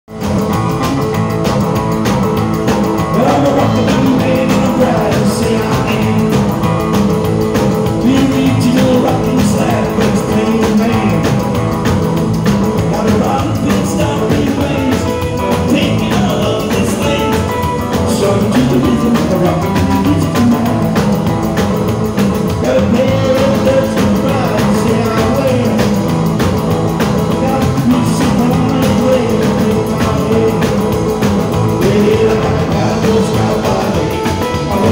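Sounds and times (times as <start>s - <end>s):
rock band playing: 0.0s - 34.9s
electric guitar: 0.1s - 34.9s.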